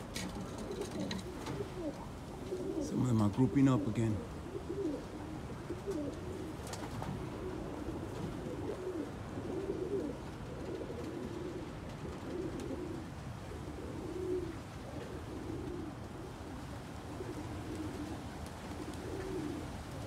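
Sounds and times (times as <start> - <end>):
pigeons cooing: 0.0 - 20.0.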